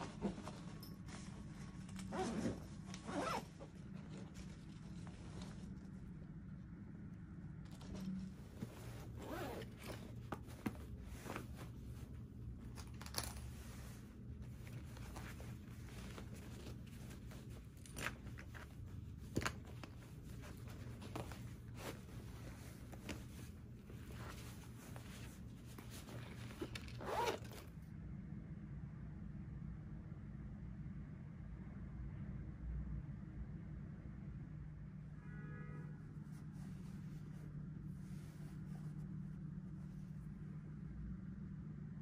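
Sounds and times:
fabric rustling: 0.0 - 6.6, 7.6 - 27.8, 36.1 - 40.7
zipper opening and closing: 1.8 - 5.8, 7.7 - 12.0, 12.6 - 27.8.

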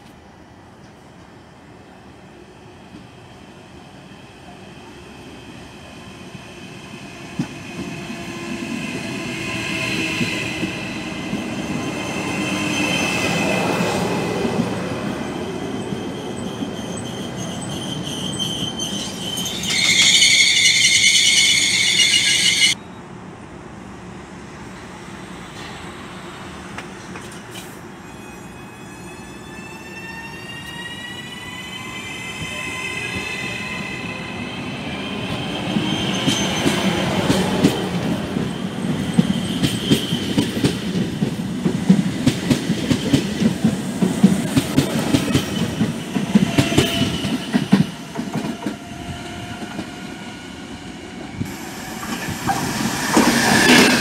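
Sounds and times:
train wheels rumbling on rails: 6.2 - 22.8, 24.6 - 28.0, 30.6 - 54.0
loud high-pitched squeal: 15.2 - 23.0, 28.0 - 36.7, 45.2 - 48.1, 48.7 - 54.0.

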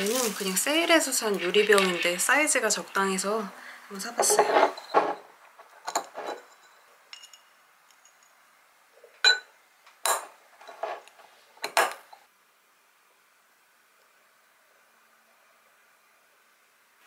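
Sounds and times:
glass lid and clips clinking: 5.9 - 8.3.

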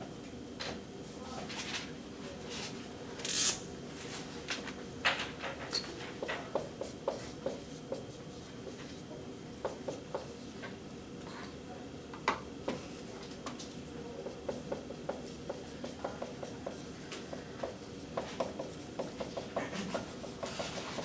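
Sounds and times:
low room hum: 0.0 - 21.0
marker writing on whiteboard: 6.2 - 10.5, 14.2 - 21.0.

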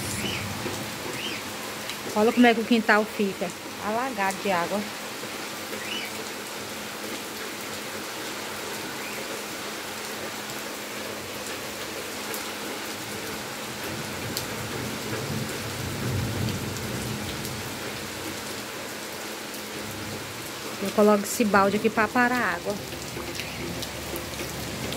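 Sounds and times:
low rumble: 0.0 - 1.2
heavy rain splashing into water: 0.0 - 24.9.

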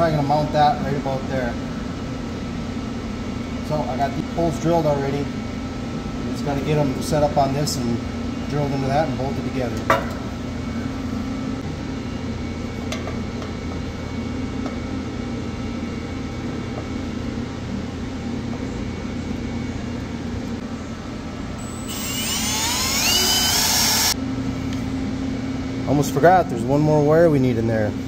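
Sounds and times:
steady background hum: 0.0 - 28.0
power drill boring into sheet metal: 21.6 - 24.2.

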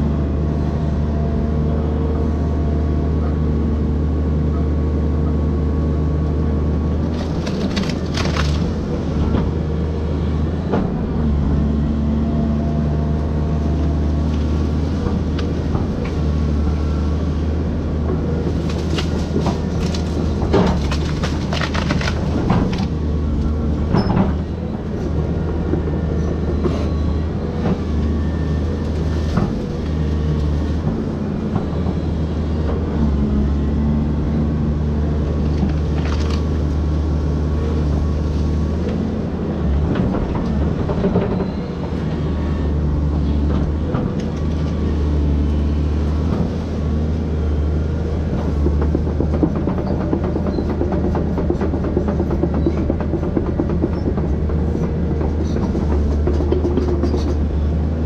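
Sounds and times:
excavator diesel engine running: 0.0 - 58.0
wood cracking and breaking: 7.1 - 9.3, 18.5 - 23.1.

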